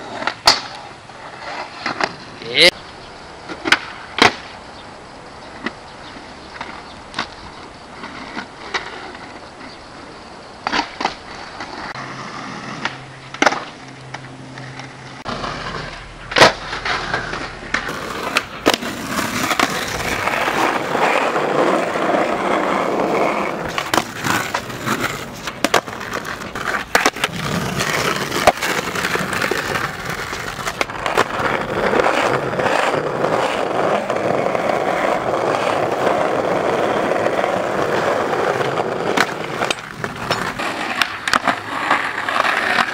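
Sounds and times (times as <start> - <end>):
skateboard wheels rolling on concrete: 0.0 - 42.9
skateboard clacks: 0.1 - 0.9, 3.5 - 4.6, 12.8 - 42.9.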